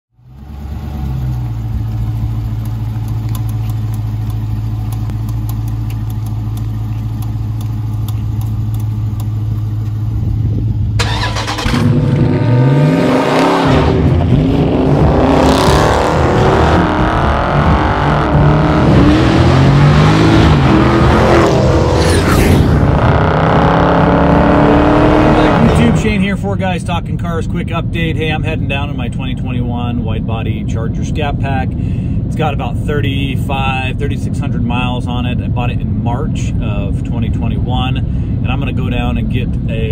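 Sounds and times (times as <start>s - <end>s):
car engine idling: 0.1s - 12.4s, 22.8s - 39.9s
car accelerating hard: 11.0s - 26.2s.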